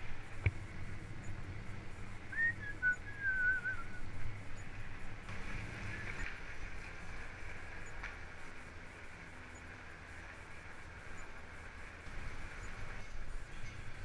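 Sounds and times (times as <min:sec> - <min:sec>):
bicycle tyres rumbling on tarmac: 0:00.0 - 0:14.0
wavering whistle: 0:02.3 - 0:04.0.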